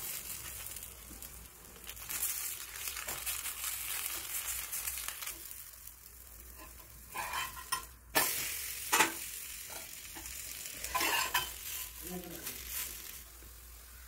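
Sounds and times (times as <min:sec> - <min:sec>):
flatbread sizzling on hot iron: 0:00.0 - 0:14.0
metal spatula scraping: 0:06.5 - 0:12.0.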